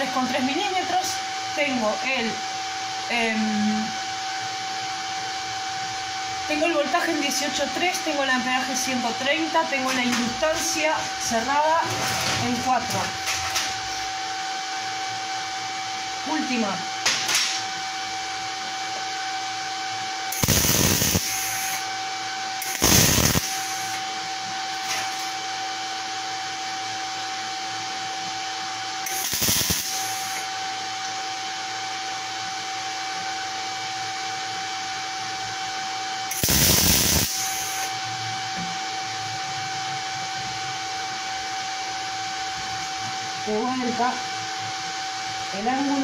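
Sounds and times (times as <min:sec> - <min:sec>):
steady hum: 0:00.0 - 0:46.0
welding arc crackle: 0:20.3 - 0:21.9, 0:22.6 - 0:24.0, 0:29.0 - 0:30.5, 0:36.3 - 0:37.9.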